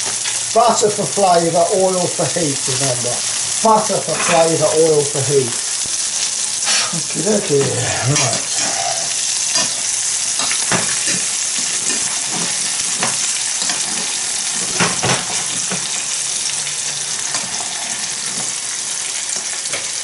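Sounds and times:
fish sizzling in frying pan: 0.0s - 20.0s
metal spoon scraping pan: 6.6s - 12.6s.

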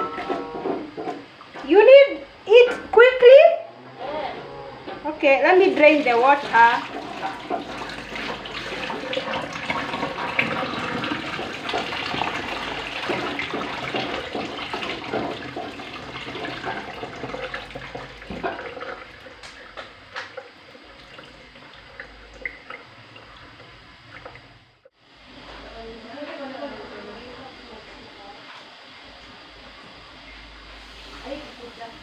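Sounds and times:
water pouring and splashing: 5.6s - 24.5s.

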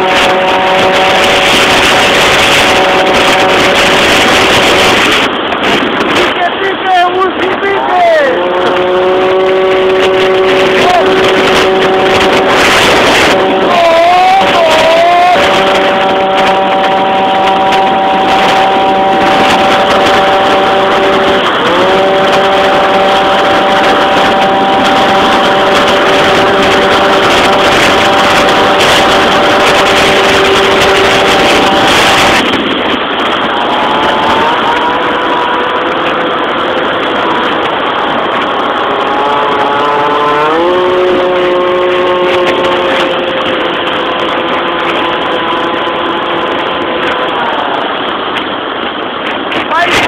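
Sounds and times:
scooter engine revving: 8.3s - 47.9s.

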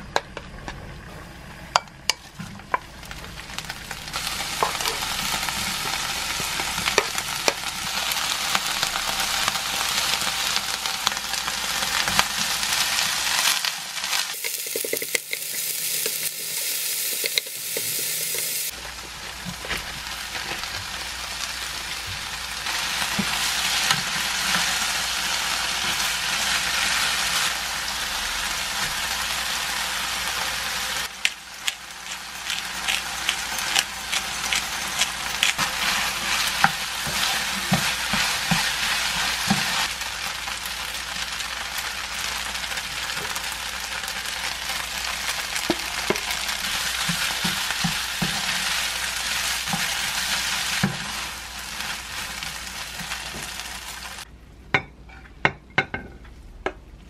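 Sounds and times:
food sizzling in a frying pan: 1.8s - 54.3s.

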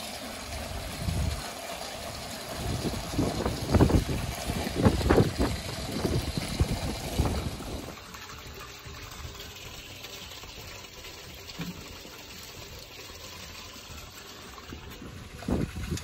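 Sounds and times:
running water: 0.0s - 16.0s.

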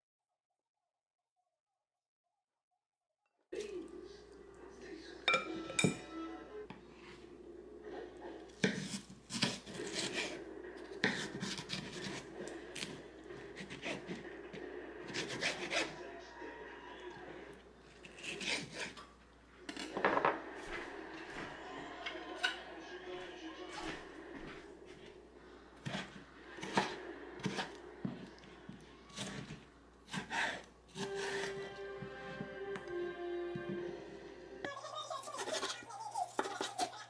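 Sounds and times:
knife scraping watermelon: 8.6s - 14.3s, 15.0s - 16.0s, 17.9s - 19.1s, 25.8s - 31.7s, 35.3s - 37.0s.

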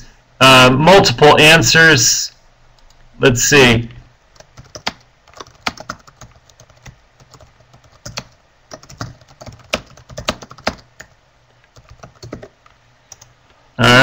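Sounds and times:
faint steady hum: 0.0s - 14.0s
typing on computer keyboard: 4.4s - 13.3s.

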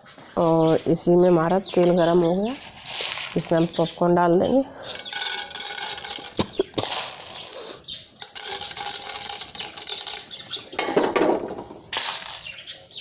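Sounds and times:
oil crackling sizzle: 0.0s - 4.4s, 5.1s - 13.0s
kernels clicking into pot: 5.0s - 7.5s, 8.2s - 12.5s.

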